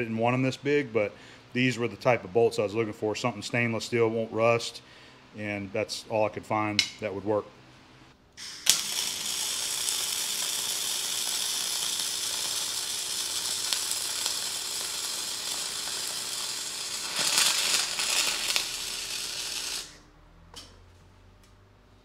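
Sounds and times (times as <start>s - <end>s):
welding arc crackling: 8.4s - 20.7s.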